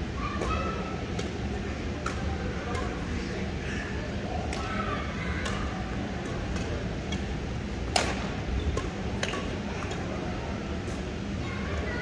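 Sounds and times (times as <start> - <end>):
steady low hum: 0.0 - 12.0
rackets striking shuttlecock: 0.4 - 1.4, 2.0 - 3.0, 5.4 - 7.3, 7.9 - 10.0.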